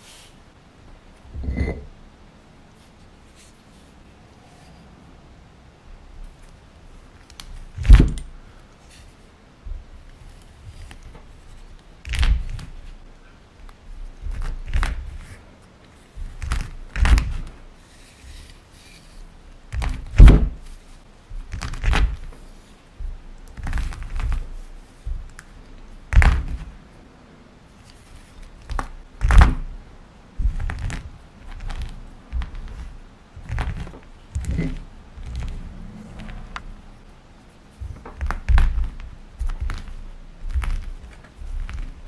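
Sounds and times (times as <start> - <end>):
stone pestle thunks: 7.8 - 8.2, 19.7 - 20.6.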